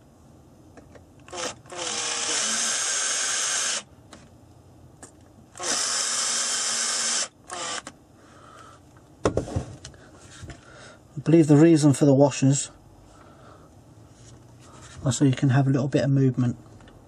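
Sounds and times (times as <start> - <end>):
cordless drill driving screws: 1.2 - 3.9, 5.6 - 7.9.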